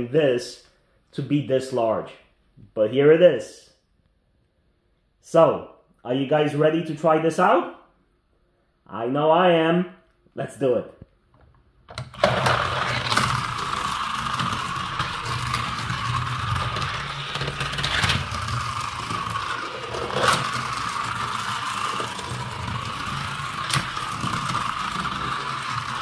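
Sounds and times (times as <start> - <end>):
toy car motor whirring: 12.0 - 26.0.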